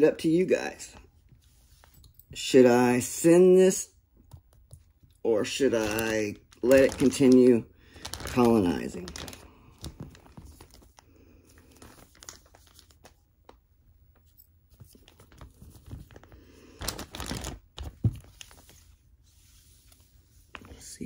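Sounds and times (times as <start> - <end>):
plastic bag crinkling: 5.3 - 13.6, 14.9 - 18.8.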